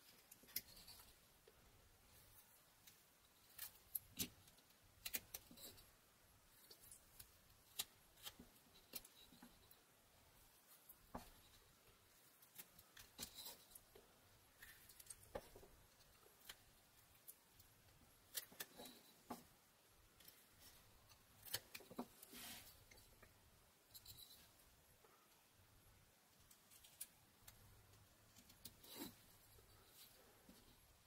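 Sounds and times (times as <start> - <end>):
knife carving wood: 0.0 - 1.6, 2.2 - 25.2, 26.4 - 31.0.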